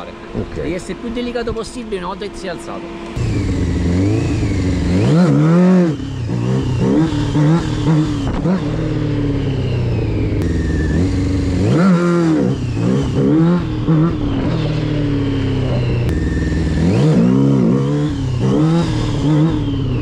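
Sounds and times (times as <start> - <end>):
motorcycle engine revving: 0.0 - 20.0.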